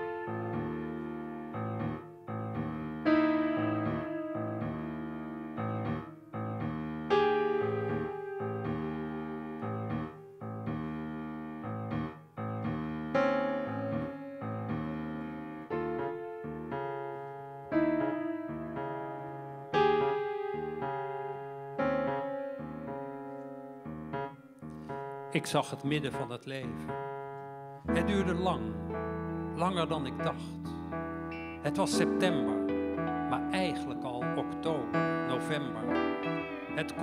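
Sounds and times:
slow piano chords: 0.0 - 37.0.

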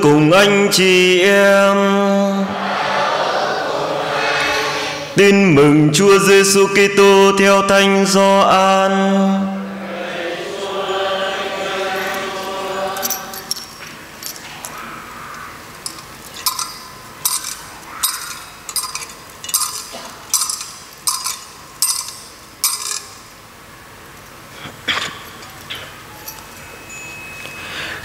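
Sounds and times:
choir holding a chord: 2.3 - 5.2, 8.9 - 13.8
thurible chains clinking: 13.0 - 23.4, 25.0 - 27.6.

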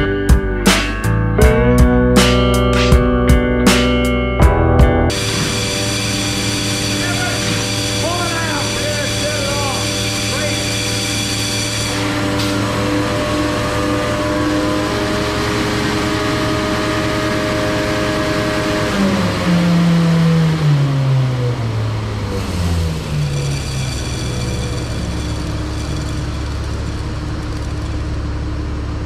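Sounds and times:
grain vacuum rushing drone: 5.1 - 29.0.

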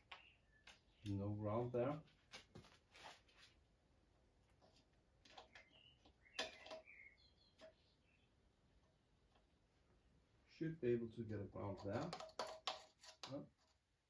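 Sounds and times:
faint high chirps: 5.5 - 8.3.

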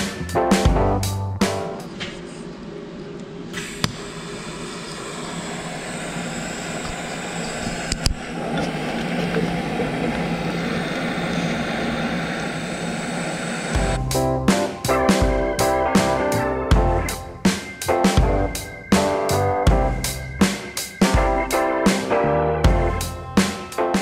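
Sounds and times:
welding arc hiss and buzz: 3.1 - 14.1.

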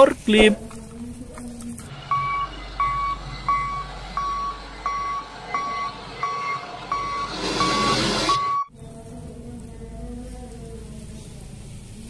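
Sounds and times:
engine humming: 0.6 - 12.0
hiss: 1.8 - 8.5
forklift warning beeps: 1.9 - 8.7.

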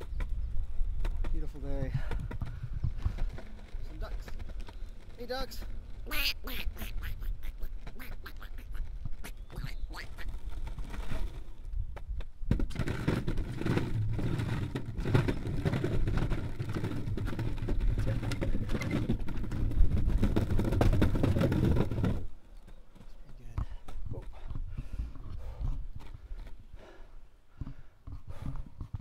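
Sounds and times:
skateboard wheels rolling on concrete: 0.0 - 29.0
wheels clattering over wooden planks: 0.0 - 29.0
ducks quacking: 6.1 - 10.4.

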